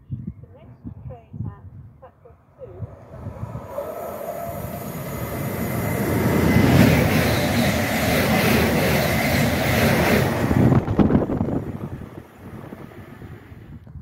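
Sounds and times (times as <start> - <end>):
train wheels rushing on rail: 2.8 - 13.7.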